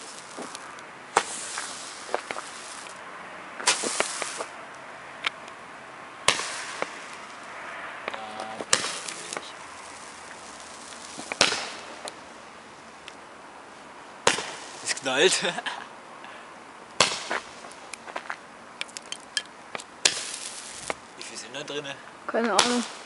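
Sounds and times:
firework hiss: 0.0 - 5.2, 6.2 - 13.0, 14.2 - 15.8, 16.9 - 18.1, 18.8 - 23.0
roman candle bangs: 3.6 - 4.5, 6.3 - 7.1, 8.4 - 9.6, 11.2 - 12.1, 14.2 - 14.7, 17.0 - 17.5.

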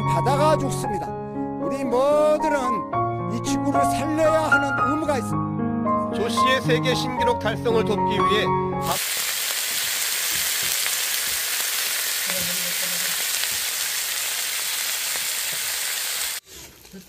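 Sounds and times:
meat sizzling on a griddle: 8.8 - 16.4.

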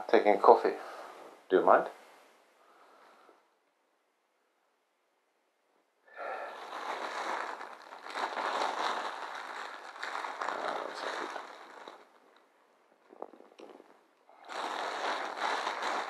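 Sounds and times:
loud rustling and crackling: 6.3 - 16.0.

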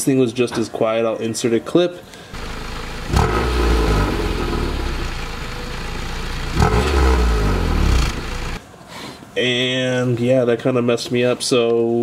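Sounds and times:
car exhaust idling: 2.4 - 8.6
engine throttle blip: 2.4 - 8.6.

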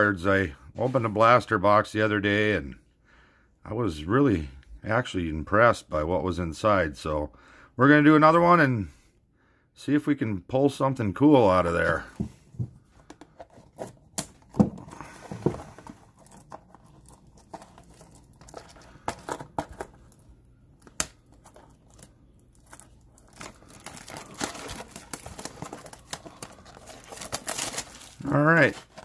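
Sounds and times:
plastic wrap tearing and crinkling: 13.6 - 29.0.

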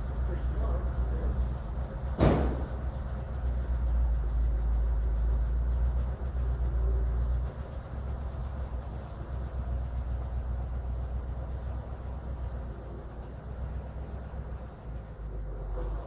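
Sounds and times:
truck engine running at low speed: 0.0 - 16.0
sharp bang: 2.2 - 2.8.

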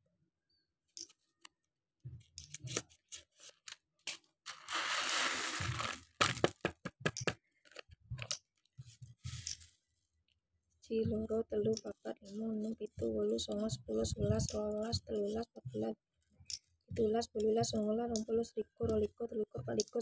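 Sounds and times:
paper packet crinkling: 3.3 - 7.8
seeds pouring out: 4.5 - 7.1
seeds clicking on a table: 4.5 - 7.4.

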